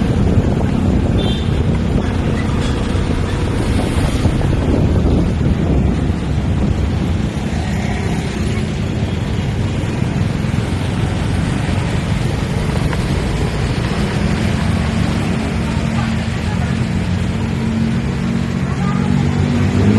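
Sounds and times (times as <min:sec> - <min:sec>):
motorcycle engine rumbling: 0:00.0 - 0:19.7
road and wind noise: 0:00.0 - 0:19.9.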